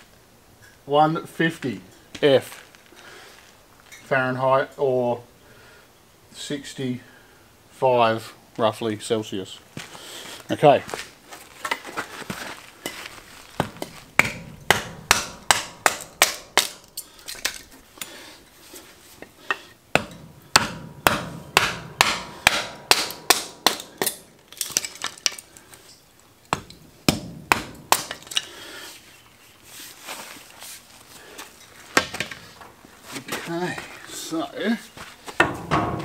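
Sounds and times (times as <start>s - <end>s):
wood being chopped: 13.6s - 16.9s, 19.9s - 25.4s, 26.5s - 28.5s, 31.9s - 32.4s.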